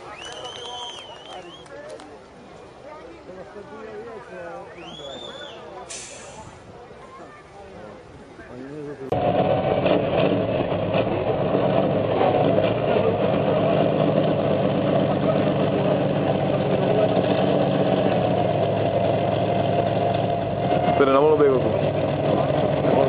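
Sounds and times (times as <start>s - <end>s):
truck engine running at low revs: 7.8s - 23.0s.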